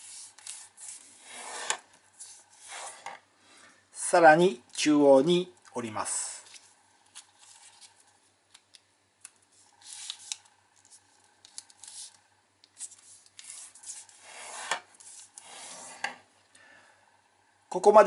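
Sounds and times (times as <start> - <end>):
paper rustling: 6.4 - 8.2
fingertips brushing paper folds: 9.5 - 12.2, 12.8 - 16.0.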